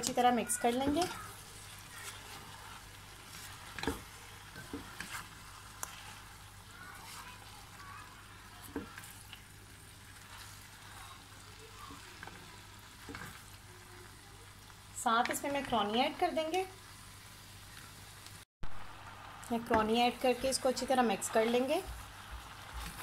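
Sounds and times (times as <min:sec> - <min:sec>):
food sizzling in a pot: 0:00.0 - 0:23.0
spatula scraping a pot: 0:00.7 - 0:07.9.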